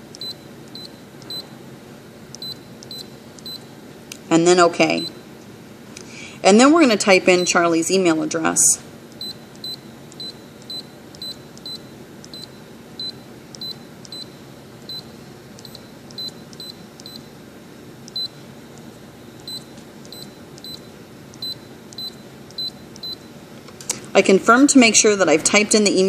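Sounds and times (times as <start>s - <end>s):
steady low hum: 0.0s - 26.0s
touchscreen key beeps: 2.4s - 3.6s.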